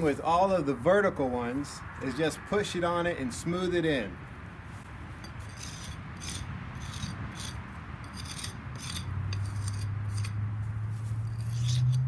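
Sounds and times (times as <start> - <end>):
jointer scraping mortar: 5.2 - 10.4, 11.2 - 12.0.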